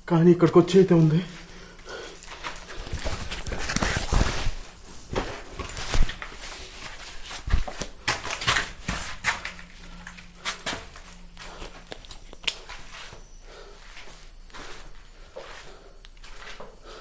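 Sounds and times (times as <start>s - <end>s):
footsteps: 0.9s - 17.0s
backpack and camera handling noise: 2.2s - 13.1s.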